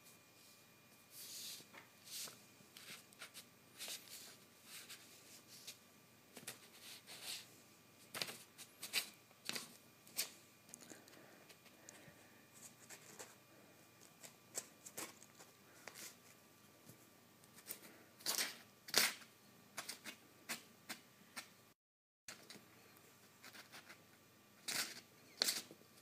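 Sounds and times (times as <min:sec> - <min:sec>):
kitten clawing at paper: 0:14.0 - 0:16.2, 0:24.6 - 0:25.7.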